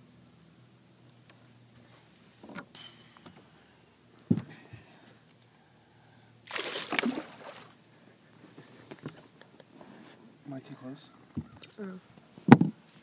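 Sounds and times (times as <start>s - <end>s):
fish splashing at the surface: 6.4s - 7.8s.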